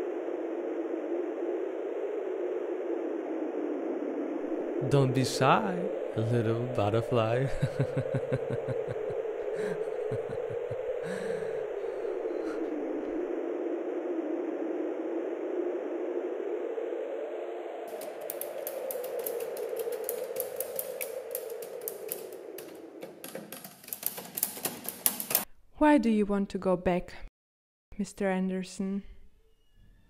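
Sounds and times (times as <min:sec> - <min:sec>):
wavering drone: 0:00.0 - 0:24.1
typewriter keys clattering: 0:17.9 - 0:25.5.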